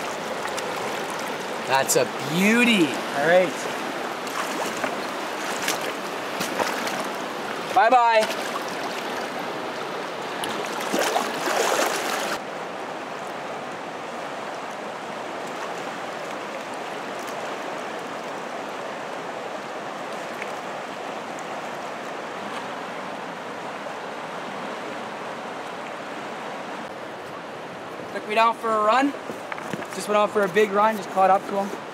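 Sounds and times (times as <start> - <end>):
river current rushing: 0.0 - 31.9
fish splashing in water: 4.1 - 9.4, 10.4 - 12.4.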